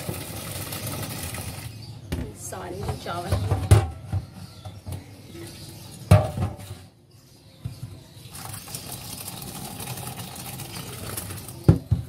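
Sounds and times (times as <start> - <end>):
water poured through colander: 0.0 - 1.7, 8.3 - 11.7.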